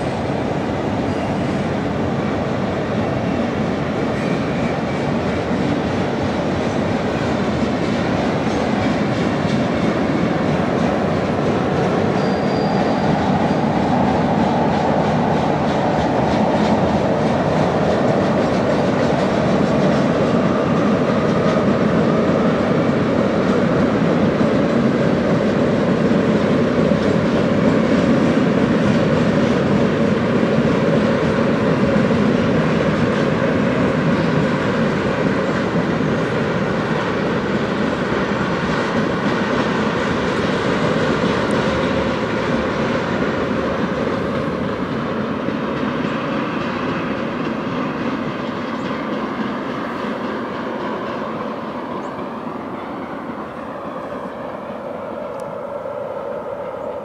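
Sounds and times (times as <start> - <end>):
train wheels clattering on a bridge: 0.0 - 53.3.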